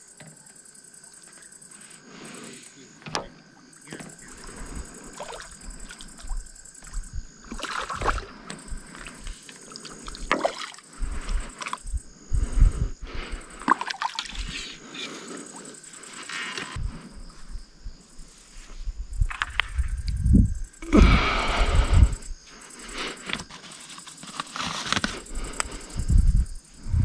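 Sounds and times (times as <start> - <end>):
night insects chirring: 0.0 - 27.0
water sloshing and trickling: 3.9 - 12.0, 13.6 - 14.8.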